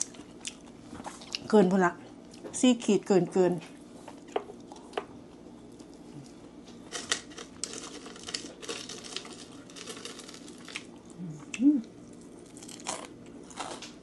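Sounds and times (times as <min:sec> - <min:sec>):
person humming: 0:11.2 - 0:11.9.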